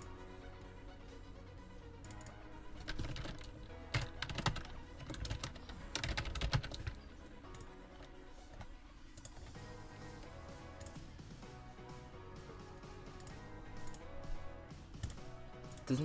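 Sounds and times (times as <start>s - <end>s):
quiet background music: 0.0s - 16.0s
computer keyboard typing: 2.0s - 9.6s.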